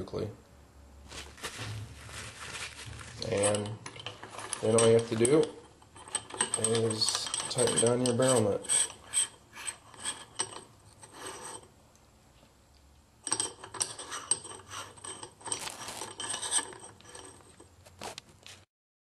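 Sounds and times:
metal nut scraping on threads: 0:02.8 - 0:11.7, 0:13.2 - 0:17.7.

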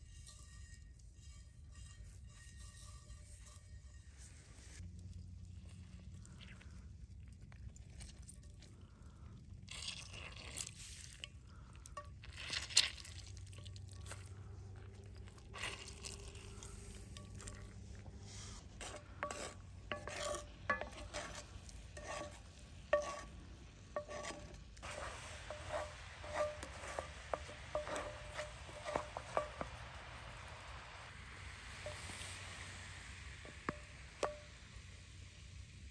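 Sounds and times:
wooden spoon scraping pan: 0:00.0 - 0:04.8, 0:09.7 - 0:32.5, 0:33.4 - 0:34.5
juice sizzling in hot pan: 0:00.0 - 0:35.9.

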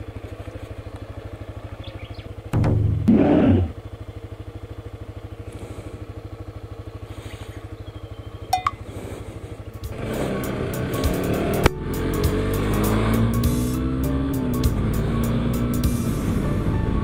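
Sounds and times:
motorcycle engine idling and revving: 0:00.0 - 0:17.0.

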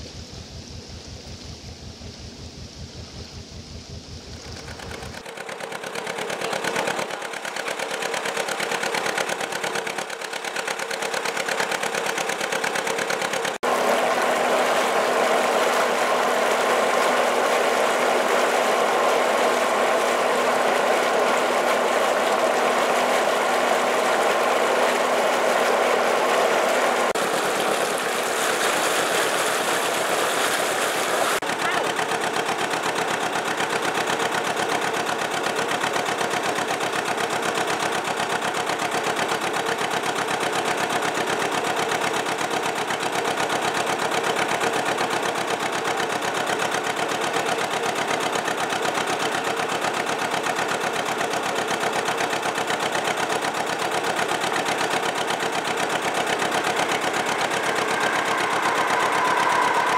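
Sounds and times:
boat diesel engine running: 0:00.0 - 0:59.9
water rushing and splashing: 0:24.9 - 0:31.4.

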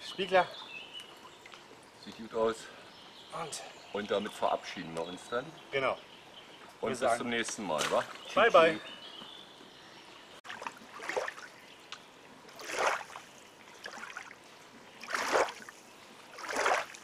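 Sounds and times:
small waves lapping shore: 0:10.4 - 0:11.6, 0:12.5 - 0:14.4, 0:15.0 - 0:17.0.

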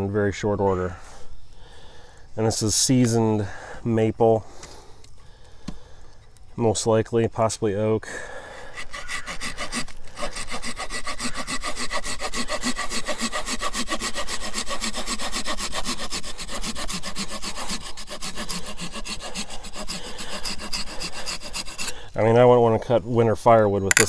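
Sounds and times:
hand saw cutting wood: 0:08.6 - 0:22.0.

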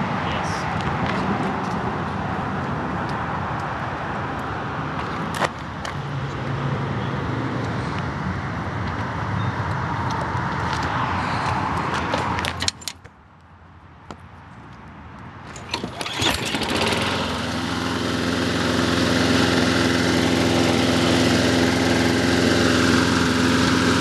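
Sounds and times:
lawn mower engine running: 0:15.5 - 0:24.0.

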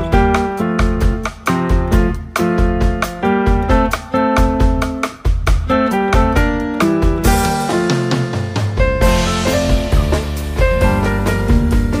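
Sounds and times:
instrumental music with steady beat: 0:00.0 - 0:12.0.

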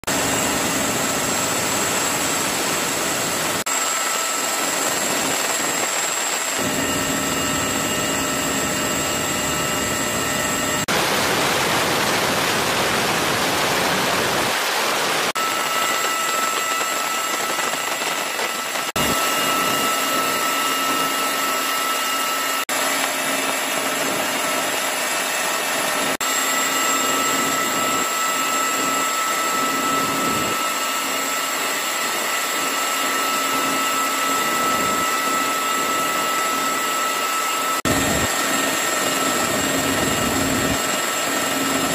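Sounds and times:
high whining engine tones: 0:00.1 - 0:10.9, 0:15.3 - 0:41.9.

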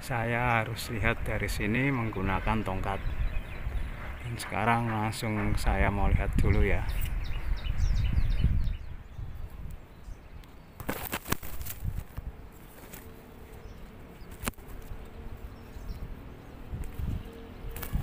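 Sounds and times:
leaves rustling: 0:09.3 - 0:18.0
pole knocking branches: 0:10.8 - 0:13.2.

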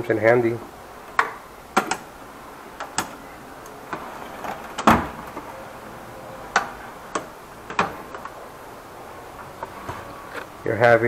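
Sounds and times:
metal drawers sliding and banging: 0:02.8 - 0:10.6.

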